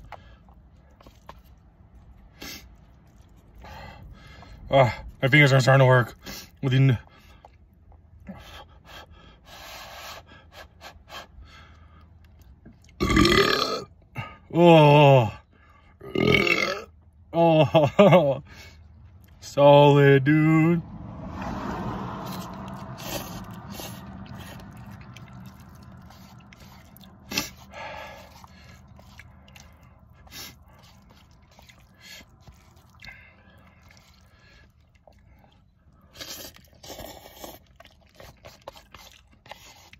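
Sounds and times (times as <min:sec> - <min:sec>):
person slurping and chewing noodles: 0:00.0 - 0:05.2, 0:09.6 - 0:14.0, 0:16.0 - 0:16.8, 0:22.2 - 0:39.9
man breathing hard through mouth: 0:03.6 - 0:04.7, 0:08.2 - 0:12.2, 0:25.9 - 0:37.6.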